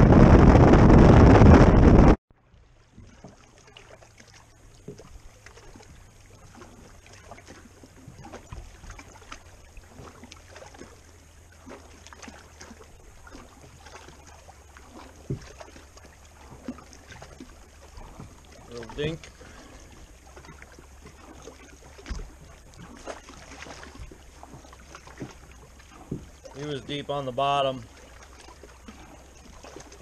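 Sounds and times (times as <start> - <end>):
wind rushing on microphone: 0.0 - 2.2
water lapping against hull: 0.0 - 30.0.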